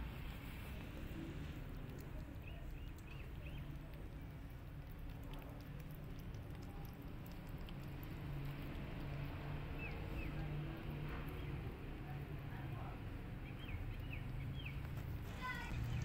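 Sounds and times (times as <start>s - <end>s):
kitten chewing clicks: 0.1s - 12.4s.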